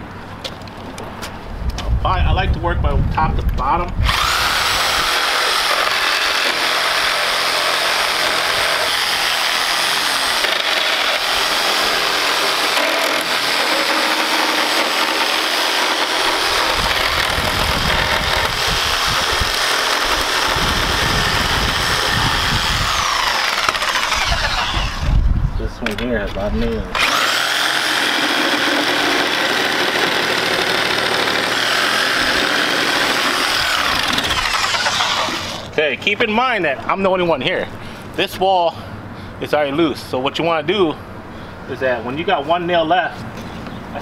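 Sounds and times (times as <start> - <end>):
reciprocating saw cutting nails: 4.1 - 25.1, 27.0 - 35.7.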